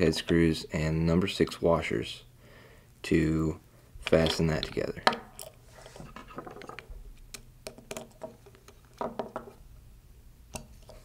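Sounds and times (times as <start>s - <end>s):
handling of metal parts: 4.0s - 7.0s.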